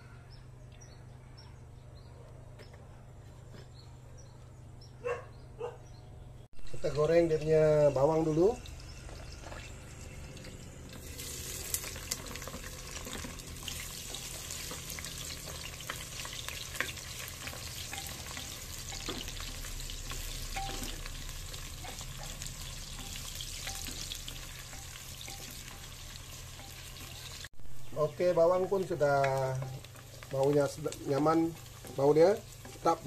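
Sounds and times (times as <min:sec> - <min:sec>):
onion sizzling in hot oil: 0:06.7 - 0:33.0
wooden spatula scraping and tapping: 0:12.1 - 0:21.0, 0:28.5 - 0:33.0.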